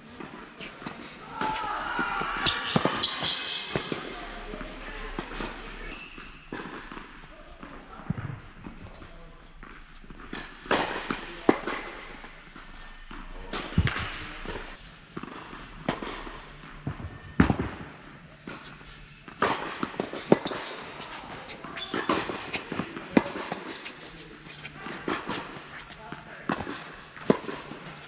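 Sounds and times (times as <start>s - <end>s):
tennis racket hitting ball: 0.2s - 9.0s, 9.6s - 28.0s
tennis ball bouncing: 13.5s - 17.8s, 19.3s - 20.8s, 26.5s - 27.9s.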